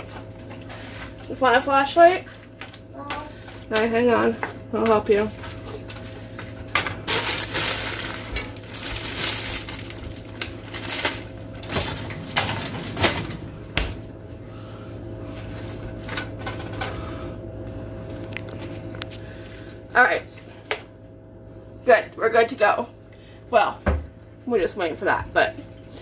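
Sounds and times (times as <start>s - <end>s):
plastic bag crinkling: 7.0s - 13.3s.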